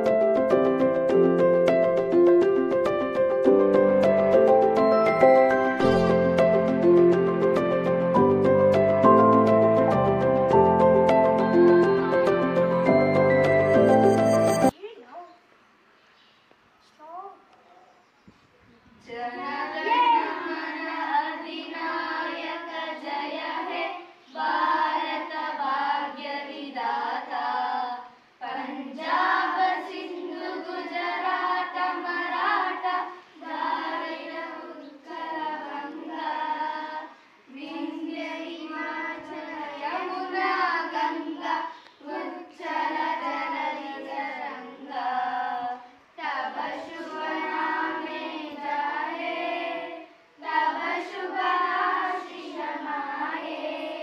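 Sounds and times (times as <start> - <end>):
children singing in unison: 19.3 - 54.0.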